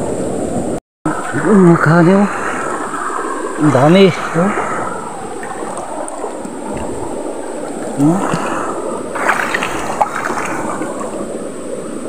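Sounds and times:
stream running over stones: 0:01.1 - 0:12.0
hand splashing in water: 0:09.2 - 0:11.1.

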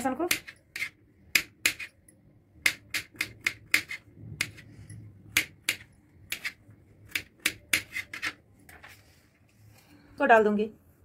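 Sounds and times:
knife chopping on cutting board: 0:02.6 - 0:04.6, 0:05.3 - 0:08.4.

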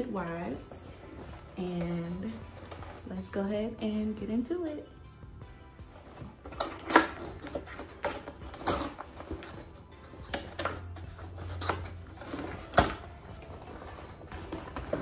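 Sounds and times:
cardboard scraping and rustling: 0:01.0 - 0:03.2, 0:05.9 - 0:15.0.

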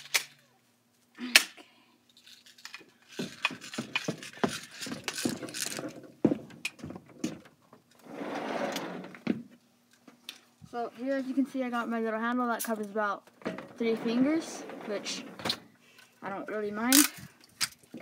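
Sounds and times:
string scraping and rustling: 0:07.9 - 0:09.4, 0:12.6 - 0:15.8.

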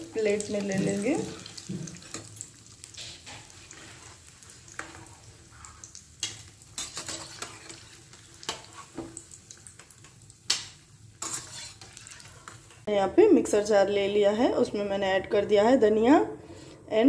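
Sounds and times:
food sizzling in hot oil: 0:00.0 - 0:12.9
metal spatula scraping a pan: 0:00.3 - 0:09.1, 0:11.2 - 0:12.9.

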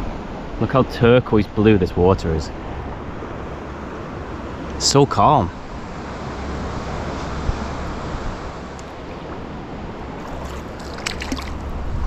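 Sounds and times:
water wash around kayak: 0:02.5 - 0:12.0
paddle splash: 0:08.8 - 0:12.0.

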